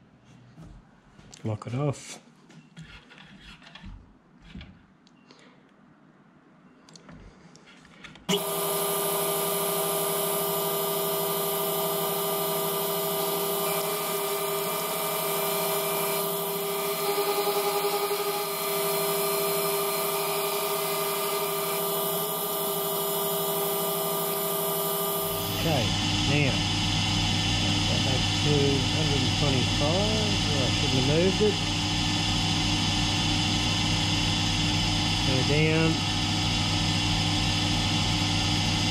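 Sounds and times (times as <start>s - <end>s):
milling machine whining: 8.3s - 38.9s.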